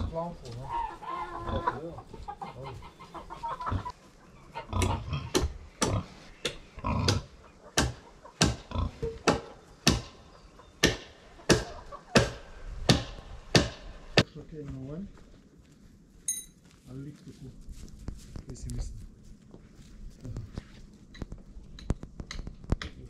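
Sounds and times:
chickens clucking: 0.0 - 13.4.

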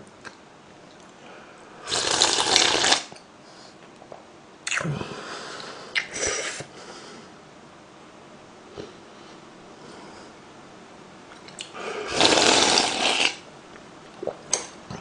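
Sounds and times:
person slurping noodles: 1.9 - 3.1, 12.0 - 13.4.

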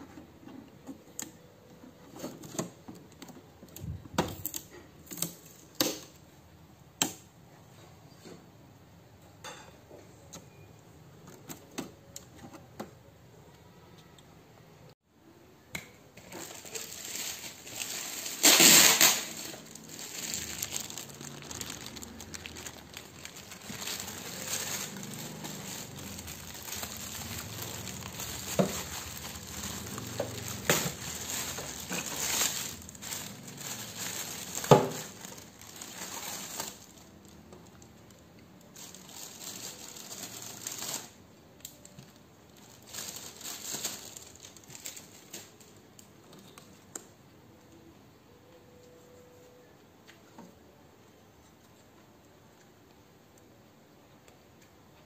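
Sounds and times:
plastic bag crinkling: 16.2 - 45.8.

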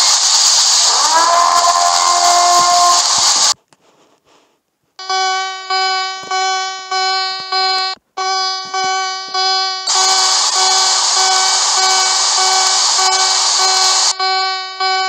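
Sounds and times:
harsh pulsing buzzing alarm: 0.0 - 3.6, 5.0 - 15.0
loud hissing noise: 0.0 - 3.6, 9.9 - 14.2
steady tones: 0.0 - 3.6.

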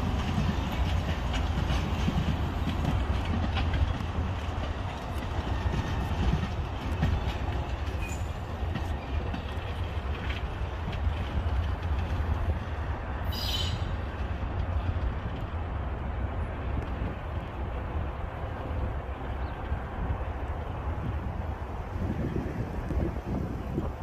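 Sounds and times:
train wheels rumbling on rails: 0.0 - 24.0
high-pitched wheel squeal: 13.3 - 13.9.

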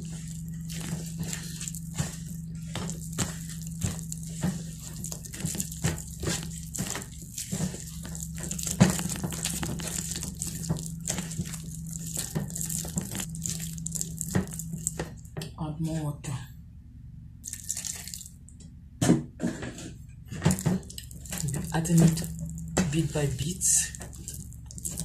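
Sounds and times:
spoon scraping plastic bowl: 0.0 - 15.1
steady low hum: 0.0 - 25.0.

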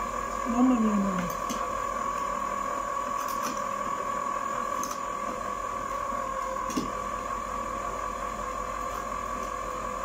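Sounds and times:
ice cream maker motor whine: 0.0 - 10.0.

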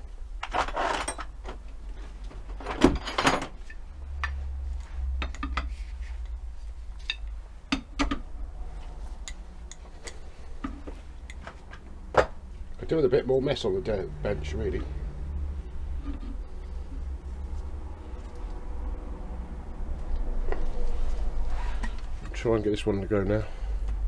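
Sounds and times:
metal tools clinking on metal: 0.6 - 1.4.

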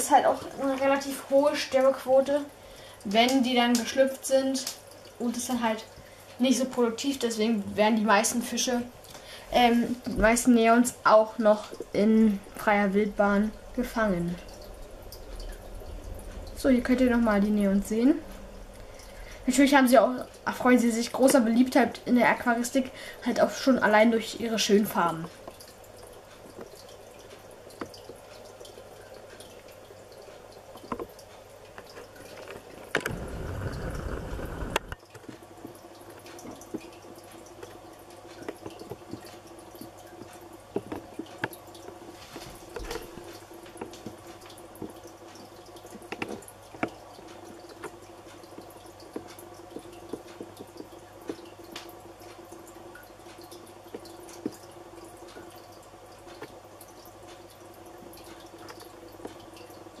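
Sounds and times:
aquarium filter hum: 0.0 - 60.0
water dripping and trickling: 0.0 - 60.0
low rumble: 13.5 - 19.6, 33.1 - 35.0.

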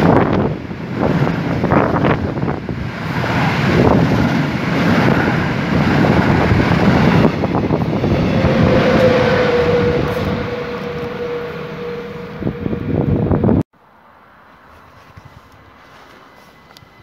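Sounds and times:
freight train wheels rumbling: 0.0 - 13.6
steady whine: 3.2 - 13.6.

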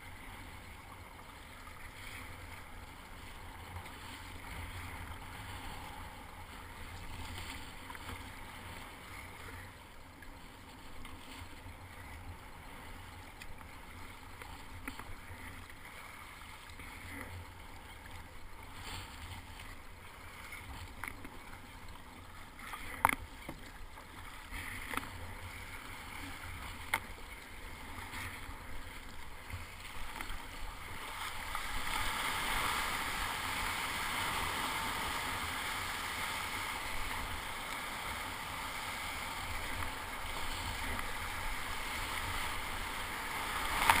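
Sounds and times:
water splashing around kayak: 0.0 - 44.0
wave breaking: 30.8 - 44.0.

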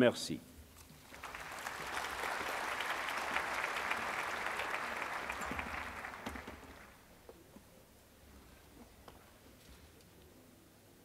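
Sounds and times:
audience applauding: 0.9 - 7.1.

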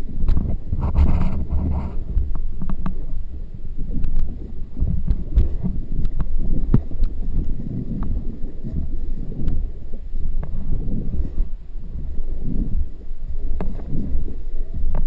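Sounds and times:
paddle clicks and small splashes: 0.0 - 15.0
water and wind rumble on microphone: 0.0 - 15.0.

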